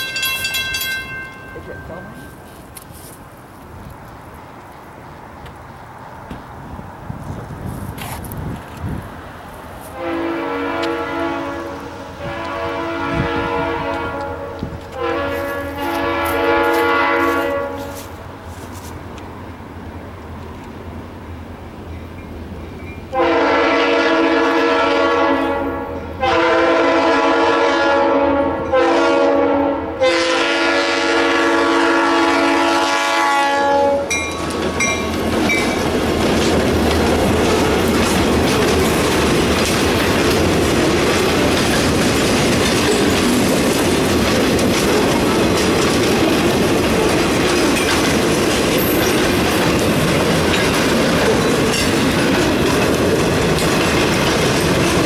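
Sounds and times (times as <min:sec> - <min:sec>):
locomotive air horn: 0:09.9 - 0:18.2, 0:23.1 - 0:34.2
train wheels clattering and rumbling: 0:34.0 - 0:55.0.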